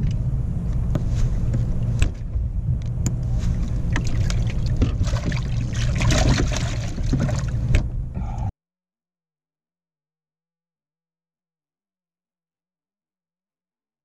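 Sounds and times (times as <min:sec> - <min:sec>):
water splashing and sloshing: 0:00.0 - 0:08.1
low motor hum: 0:00.0 - 0:08.5.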